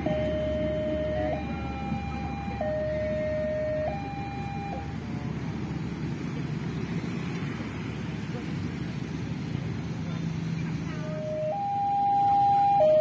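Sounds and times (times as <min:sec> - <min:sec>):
level crossing two-tone alarm: 0:00.0 - 0:04.9, 0:11.1 - 0:13.0
low traffic rumble: 0:00.0 - 0:13.0
train rumbling: 0:00.0 - 0:13.0.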